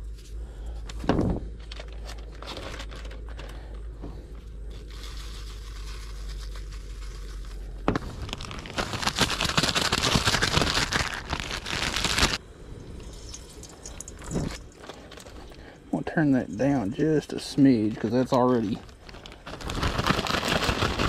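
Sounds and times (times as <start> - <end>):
plastic bag crinkling: 1.6 - 3.9, 4.6 - 12.4, 13.5 - 15.7, 17.9 - 21.0.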